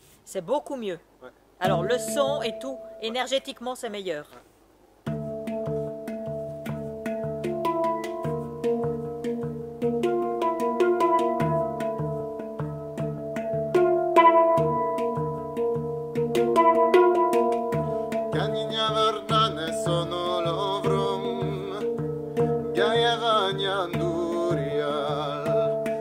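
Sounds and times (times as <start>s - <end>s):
person singing wordlessly: 1.6s - 3.3s, 18.3s - 26.0s
handpan ringing notes: 1.6s - 3.5s, 5.1s - 23.1s.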